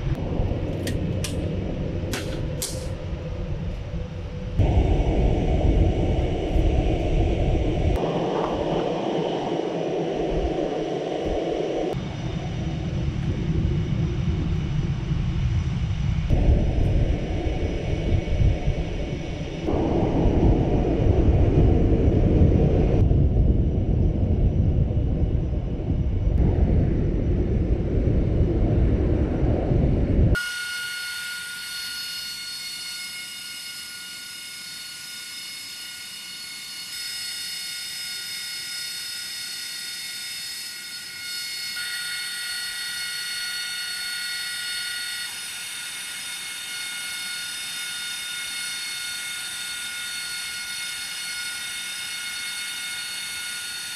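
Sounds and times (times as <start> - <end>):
jet engine rumble: 0.0 - 30.4
turbine whine: 0.0 - 53.9.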